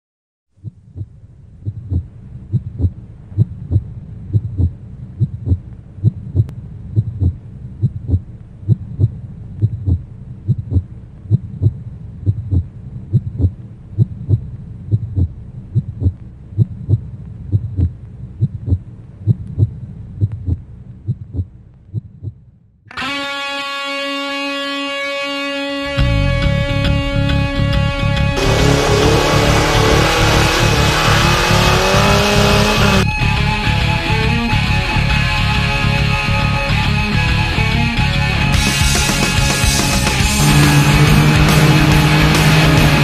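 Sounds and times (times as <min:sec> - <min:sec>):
heartbeat thumps: 0:00.6 - 0:22.5
low steady hum: 0:00.6 - 0:22.8.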